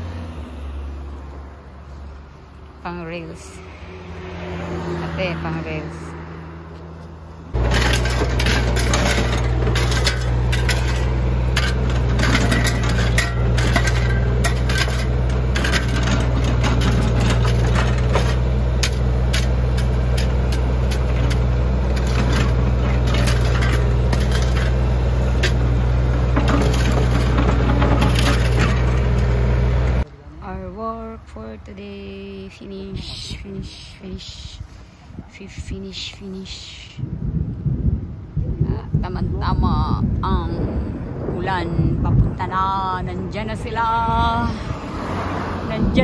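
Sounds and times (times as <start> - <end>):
excavator diesel engine running: 7.5 - 30.7
shovels scraping gravel: 7.6 - 29.4.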